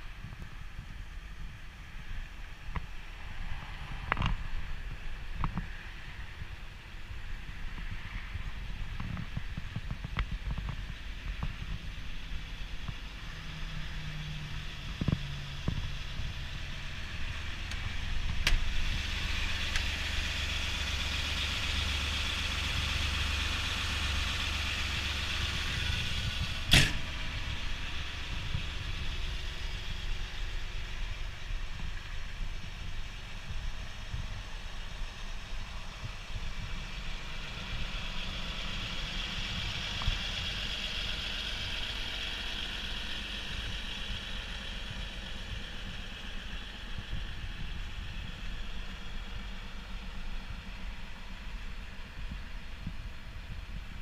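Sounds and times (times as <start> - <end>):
excavator diesel engine idling: 10.8 - 54.0
sharp knock: 26.7 - 27.2.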